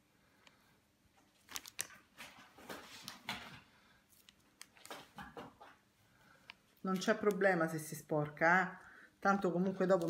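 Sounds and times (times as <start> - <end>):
plastic bag crinkling: 1.2 - 5.5, 6.5 - 8.4, 9.4 - 10.0.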